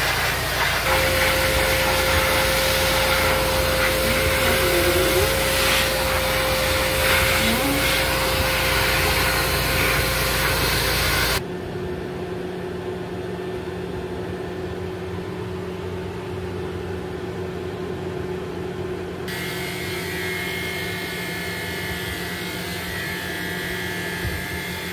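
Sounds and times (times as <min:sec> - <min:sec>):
electric clippers buzzing: 0:00.0 - 0:11.4, 0:19.3 - 0:24.9
grooming dryer blowing air: 0:00.0 - 0:11.4, 0:19.3 - 0:24.9
steady hum: 0:00.0 - 0:11.4.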